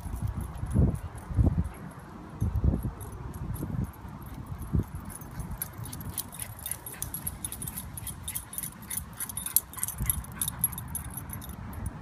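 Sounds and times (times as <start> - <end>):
light metal jingling: 0.0 - 12.0.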